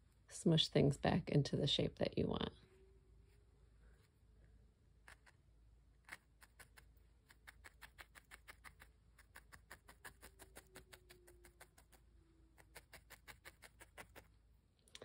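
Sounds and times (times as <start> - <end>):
felting needle stabbing wool: 6.0 - 12.0, 12.6 - 14.3.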